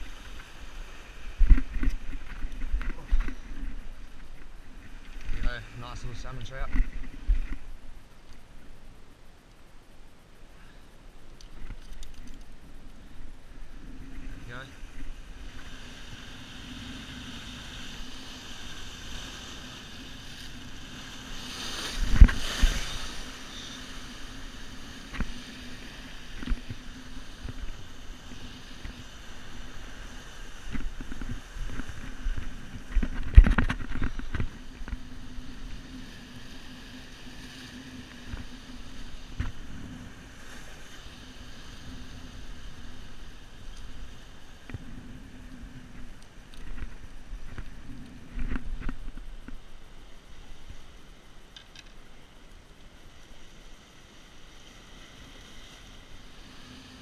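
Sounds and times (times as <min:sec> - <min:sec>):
wind on microphone: 0:12.5 - 0:49.7
surf breaking over rocks: 0:12.5 - 0:51.0.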